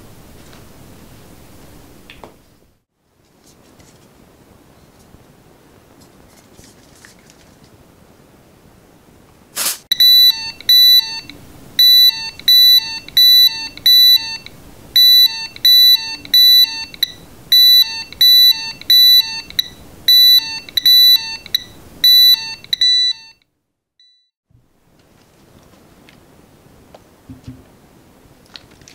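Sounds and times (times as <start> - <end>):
spray can hiss: 9.6 - 9.9
rapid high-pitched alarm beeps: 9.9 - 23.4.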